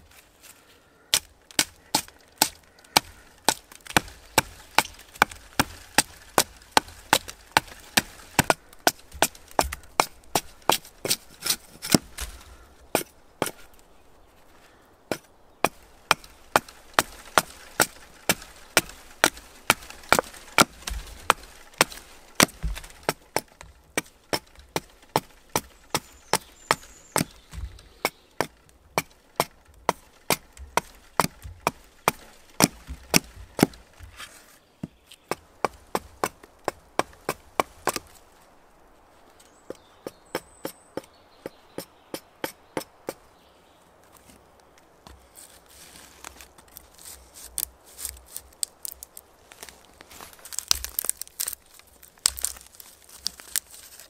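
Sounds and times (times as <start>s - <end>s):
axe chopping wood: 1.1s - 13.7s, 15.1s - 38.2s, 39.7s - 43.2s, 50.3s - 53.6s.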